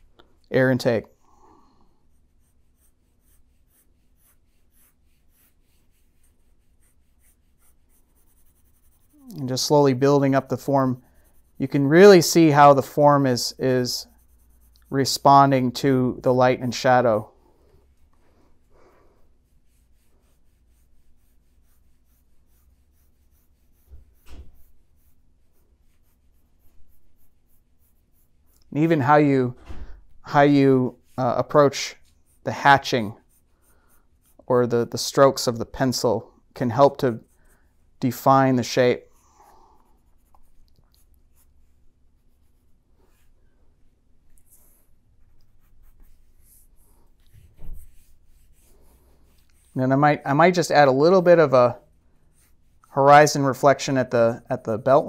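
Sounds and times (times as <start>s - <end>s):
pencil sketching strokes: 1.3s - 29.2s, 30.3s - 55.0s
low thump: 23.9s - 24.6s, 29.6s - 30.2s.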